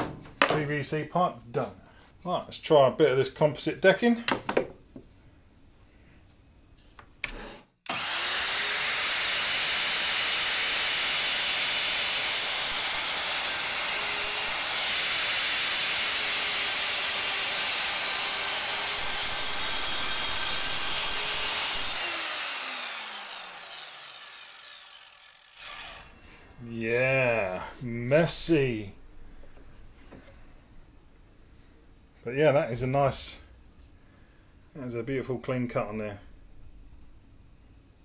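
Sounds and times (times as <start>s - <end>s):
mitre saw cutting decking: 7.3s - 26.4s.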